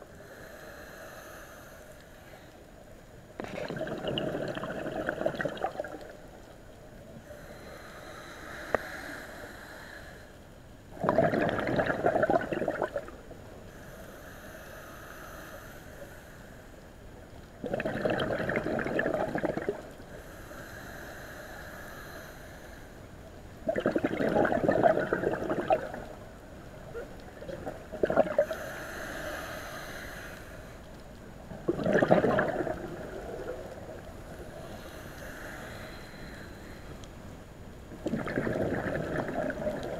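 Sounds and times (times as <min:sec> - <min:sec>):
hissing regulator inhale: 0:00.1 - 0:02.7, 0:07.2 - 0:10.4, 0:13.7 - 0:16.8, 0:20.1 - 0:23.1, 0:28.4 - 0:30.8, 0:32.7 - 0:37.1
bubbling exhaust underwater: 0:03.4 - 0:06.5, 0:10.9 - 0:13.3, 0:17.6 - 0:20.1, 0:23.6 - 0:29.0, 0:31.4 - 0:37.1, 0:37.9 - 0:39.9.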